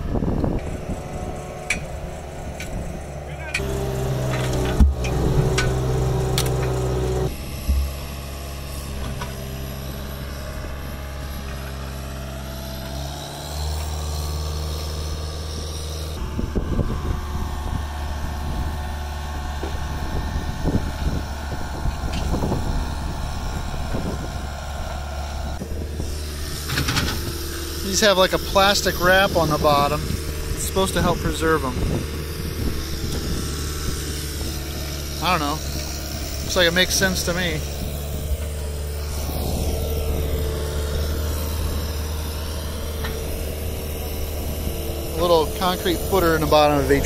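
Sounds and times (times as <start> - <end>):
engine humming: 0.0 - 47.0
knocks and clunks: 3.5 - 8.1.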